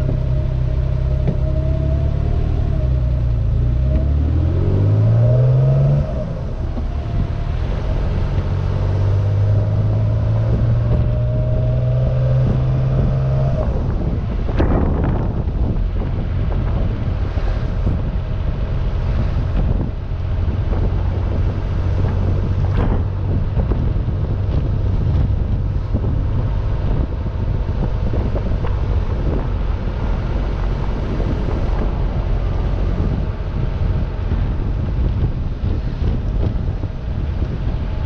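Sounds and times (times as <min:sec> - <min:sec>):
car engine running: 0:00.0 - 0:38.0
wind buffeting microphone: 0:00.0 - 0:38.0.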